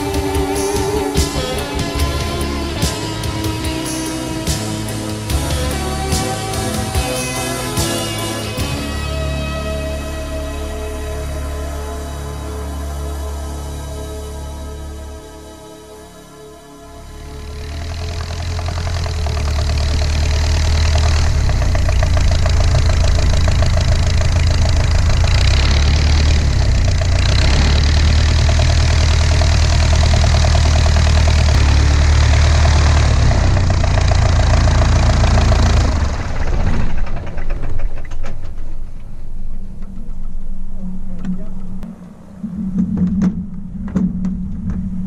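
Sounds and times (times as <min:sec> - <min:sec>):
aircraft engine running: 0:00.0 - 0:45.0
irregular clicks and knocks: 0:18.2 - 0:32.8.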